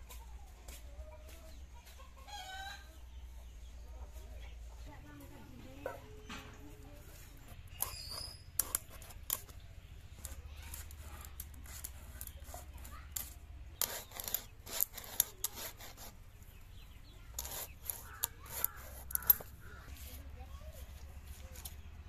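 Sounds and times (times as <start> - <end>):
blade scraping fish scales: 7.0 - 9.6, 10.2 - 16.2, 17.2 - 21.7.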